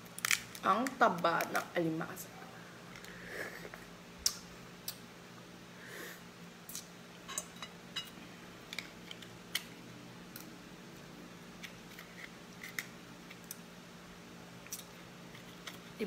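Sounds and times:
crab shell cracking: 0.1 - 1.6.

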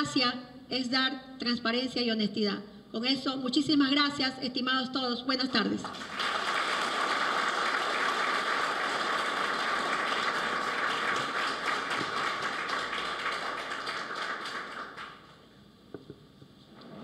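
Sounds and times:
audience applauding: 5.8 - 15.4.

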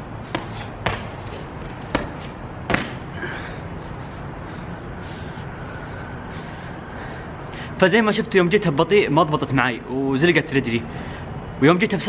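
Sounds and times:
feet landing on ground: 0.0 - 3.2
sneaker kicking off stone wall: 0.3 - 3.1.

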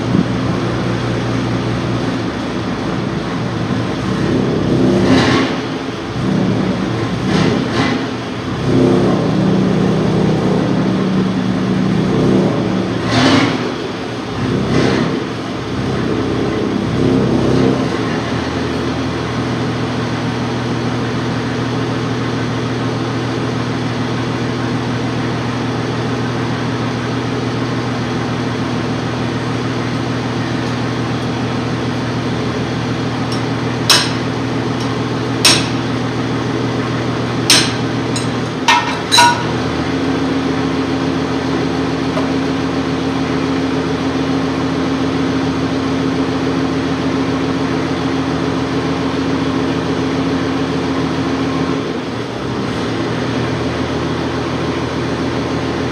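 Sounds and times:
machine hum: 0.0 - 5.0, 28.4 - 44.3
metal tool striking wheel hub: 33.3 - 36.0, 37.4 - 39.8.

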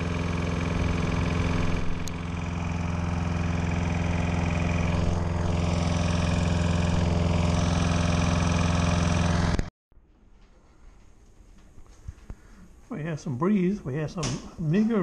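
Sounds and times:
lawn mower cutting grass: 0.0 - 9.7.

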